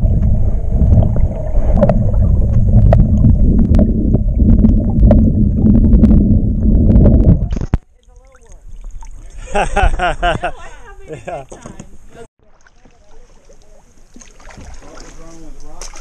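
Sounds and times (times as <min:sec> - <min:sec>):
muffled underwater water rumble: 0:00.0 - 0:10.5.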